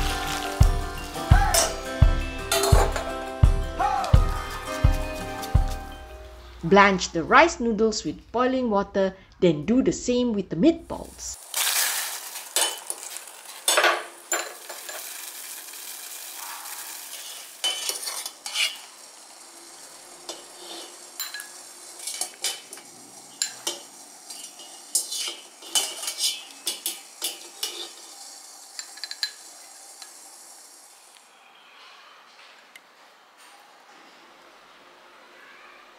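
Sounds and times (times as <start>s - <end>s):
water boiling in pot: 0.0s - 1.8s, 10.9s - 31.3s
strainer clinking against pot: 1.4s - 1.8s, 20.3s - 22.7s.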